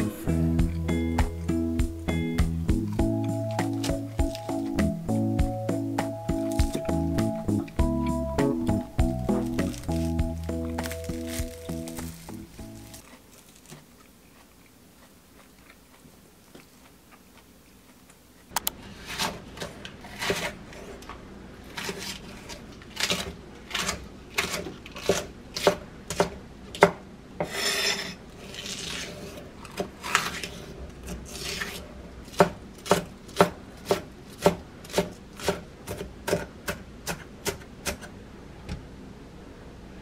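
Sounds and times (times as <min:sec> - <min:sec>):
knife scraping board: 0:18.8 - 0:21.0, 0:21.7 - 0:25.7, 0:27.4 - 0:32.5.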